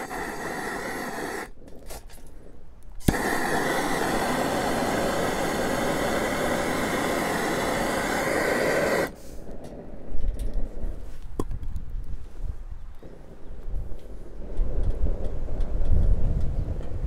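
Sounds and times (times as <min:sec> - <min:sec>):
gas torch hissing: 0:00.0 - 0:01.9, 0:03.0 - 0:09.8.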